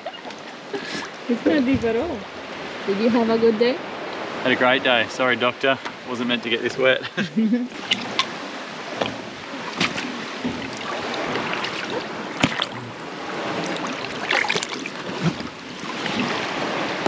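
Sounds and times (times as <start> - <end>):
sea water sloshing: 0.0 - 7.0, 7.7 - 17.0.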